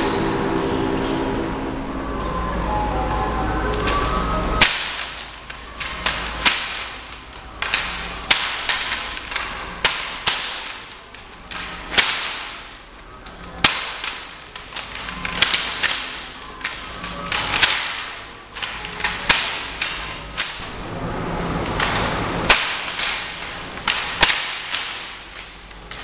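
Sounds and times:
steady low hum: 0.0 - 12.0, 14.2 - 26.0
wooden staff cracks: 4.6 - 20.7, 21.7 - 26.0.

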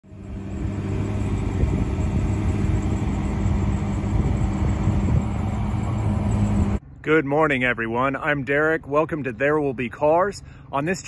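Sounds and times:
engine running steadily: 0.0 - 7.0.

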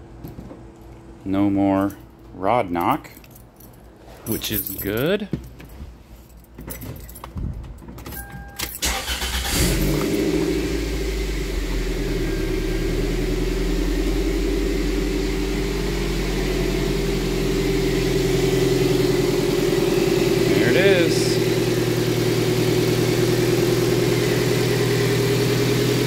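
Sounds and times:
engine cranking and starting: 8.6 - 12.2
car engine idling: 8.8 - 26.0.

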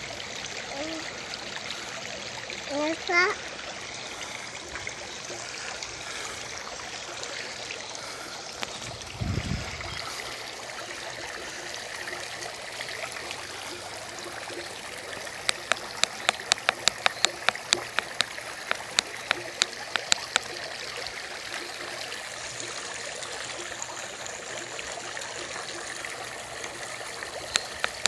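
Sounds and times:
fountain water trickling: 0.0 - 28.0
sharp clicks: 15.4 - 20.5, 27.5 - 28.0.

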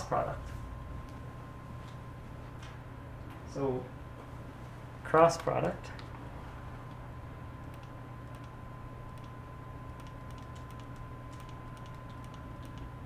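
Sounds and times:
low electrical hum: 0.0 - 13.0
faint keyboard or mouse clicking: 7.7 - 8.5, 10.0 - 12.9.

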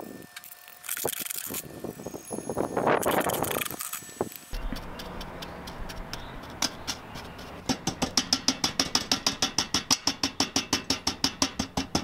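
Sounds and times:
knocking on metal bucket: 7.6 - 12.0.

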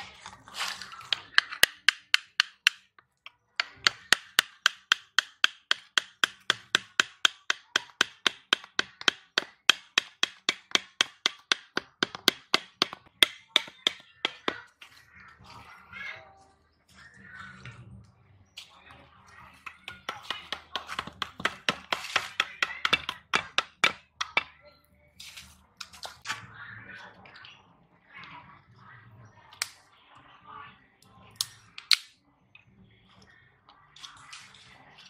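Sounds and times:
machete knocking wooden stakes: 1.1 - 2.8, 3.6 - 14.6, 19.6 - 24.5.

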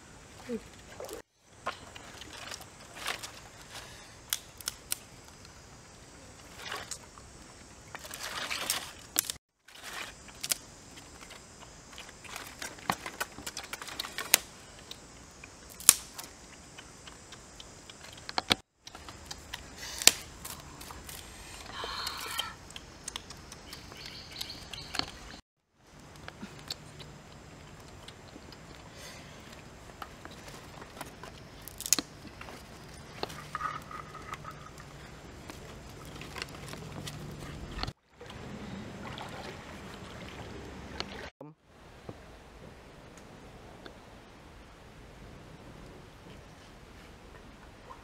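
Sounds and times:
dry twigs clicking: 1.9 - 5.6, 7.9 - 21.3, 30.0 - 34.7.

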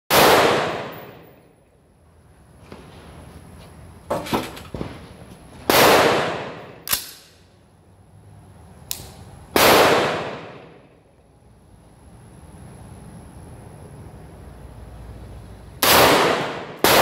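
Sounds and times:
loud echoing gunshots: 0.1 - 1.5, 5.7 - 7.3, 9.5 - 11.0, 15.8 - 17.0
short sharp cracks: 6.8 - 7.4.

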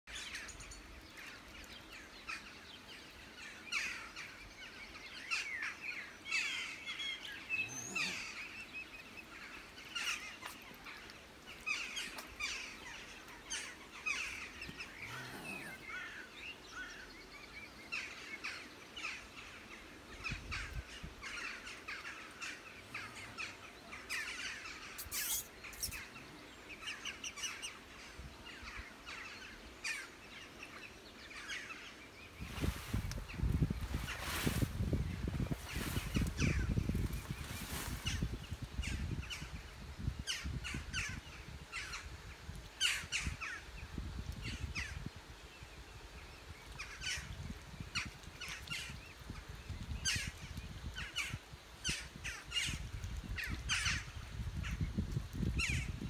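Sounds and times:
birds chirping: 0.1 - 39.6
faint outdoor background noise: 0.1 - 56.0.

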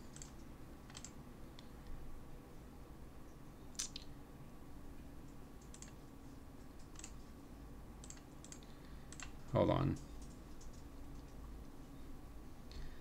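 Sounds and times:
computer mouse clicks: 0.1 - 1.7, 3.7 - 4.1, 5.2 - 6.0, 6.8 - 7.2, 8.0 - 11.4.

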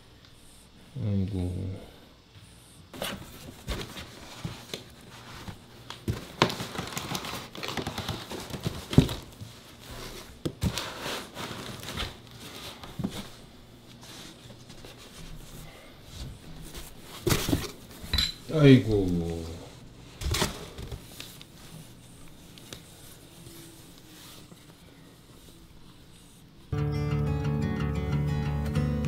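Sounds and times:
crinkling in a cardboard box: 3.0 - 15.5
cat rustling on a blanket: 21.0 - 26.7.

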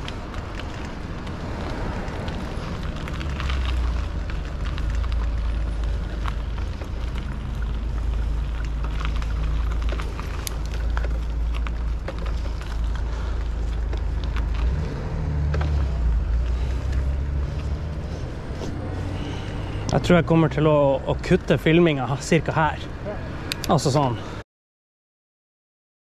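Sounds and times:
small clicks and rattles: 0.0 - 18.7
tyres rolling on pavement: 0.0 - 24.4.

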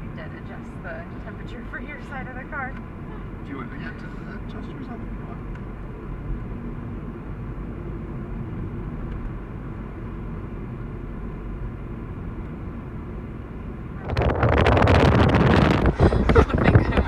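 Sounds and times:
car engine and tyres rumbling: 0.0 - 17.0
wind buffeting on microphone: 14.0 - 17.0.

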